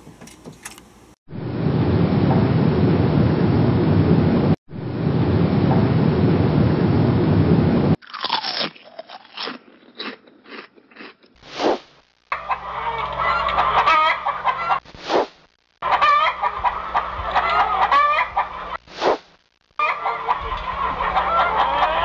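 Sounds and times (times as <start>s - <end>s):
low hum: 1.3s - 8.0s
steady rushing noise: 1.3s - 8.0s
crunching bites: 8.0s - 12.0s
chicken clucking: 12.3s - 14.8s, 15.8s - 18.8s, 19.8s - 22.0s
whoosh: 14.9s - 15.4s, 18.8s - 19.4s.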